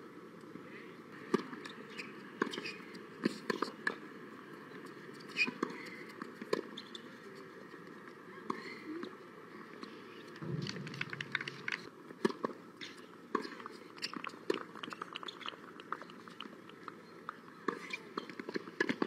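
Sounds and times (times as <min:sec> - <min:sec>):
outdoor background noise: 0:00.0 - 0:19.0
balls bouncing on hard court: 0:10.4 - 0:12.5.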